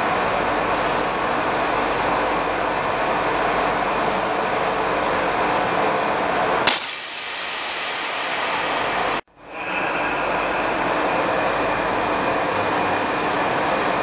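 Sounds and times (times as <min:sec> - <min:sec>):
steady rushing noise: 0:06.9 - 0:14.0.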